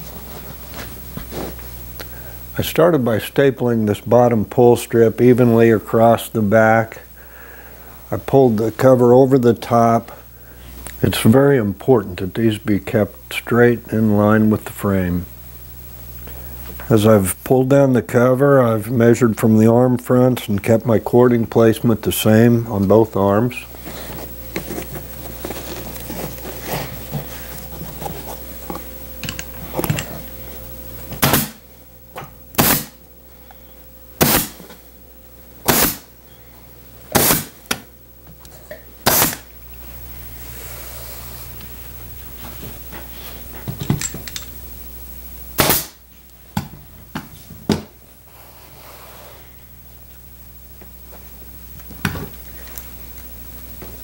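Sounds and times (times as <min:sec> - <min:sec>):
pneumatic staple gun shots: 0:31.2 - 0:31.6, 0:32.6 - 0:33.0, 0:34.2 - 0:34.6, 0:35.6 - 0:36.1, 0:37.1 - 0:37.6, 0:39.0 - 0:39.5, 0:45.6 - 0:46.0.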